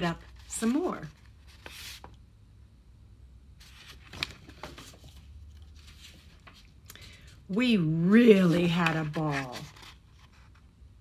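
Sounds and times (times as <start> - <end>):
paper book rustling: 0.0 - 2.2, 3.6 - 7.4, 8.0 - 10.7.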